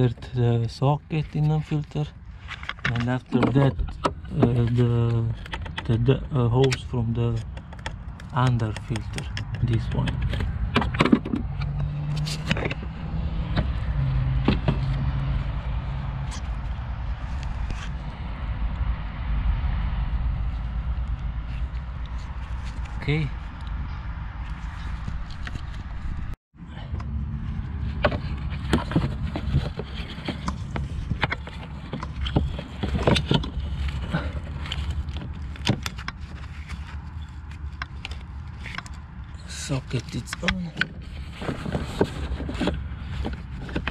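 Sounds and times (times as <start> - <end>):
clicks and knocks of parts: 2.4 - 6.0, 6.6 - 12.9
low rumble: 11.4 - 35.5
low hum: 11.4 - 35.6.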